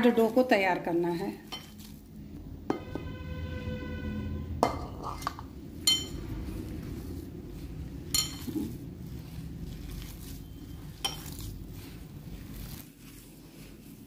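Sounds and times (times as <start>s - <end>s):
dough rustling: 0.0s - 2.4s, 5.0s - 14.0s
glass bowl clinking and ringing: 4.6s - 6.2s, 8.1s - 8.5s.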